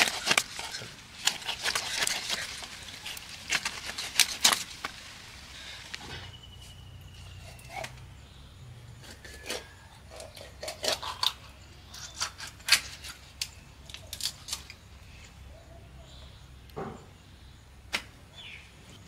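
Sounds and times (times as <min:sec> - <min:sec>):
blade scraping and cutting fish: 0:00.0 - 0:04.9.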